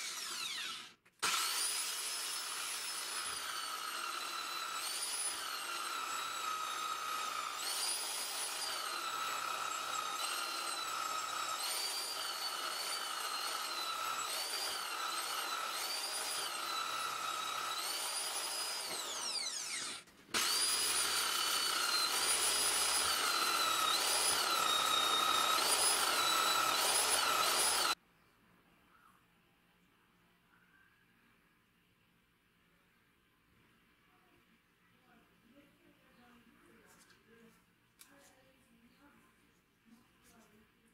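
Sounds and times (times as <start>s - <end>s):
angle grinder whining: 0.0s - 28.0s.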